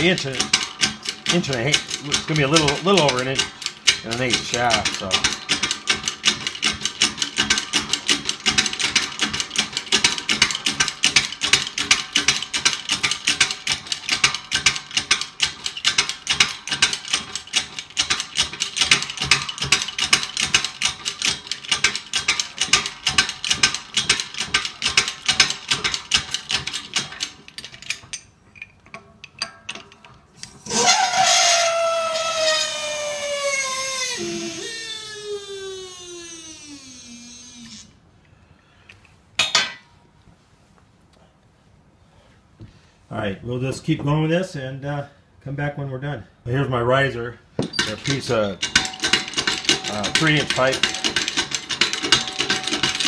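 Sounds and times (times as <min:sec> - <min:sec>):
hydraulic press ticking: 0:00.0 - 0:27.8, 0:32.2 - 0:37.9.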